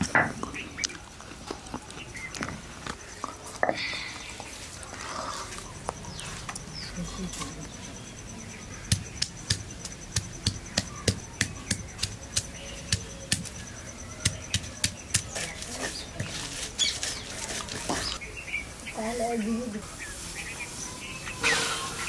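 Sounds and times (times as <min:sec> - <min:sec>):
stone pestle knocking on stone: 0:08.9 - 0:13.5.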